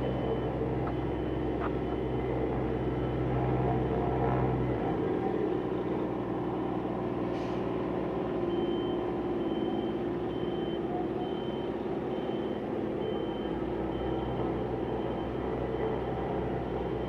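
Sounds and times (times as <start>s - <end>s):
reversing alarm beeping: 0.0s - 4.0s, 8.4s - 17.0s
diesel engine running: 0.0s - 17.0s.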